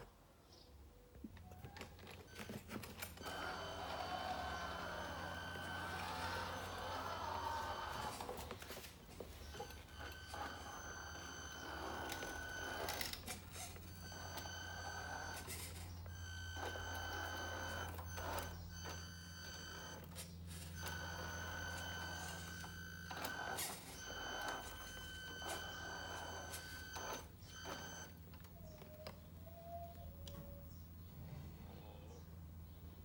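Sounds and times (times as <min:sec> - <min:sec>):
electronic reverse warning beeper: 0:09.4 - 0:28.2.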